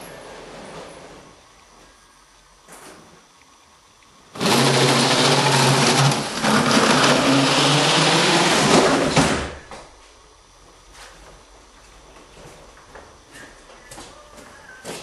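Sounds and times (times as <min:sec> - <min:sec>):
small electric motor humming: 0:04.3 - 0:09.2.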